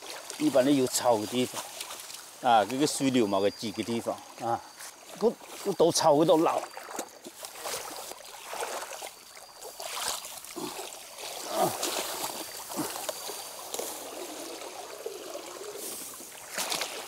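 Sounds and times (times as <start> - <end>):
stream running water: 0.0 - 17.0
net splashing and swishing: 6.6 - 17.0.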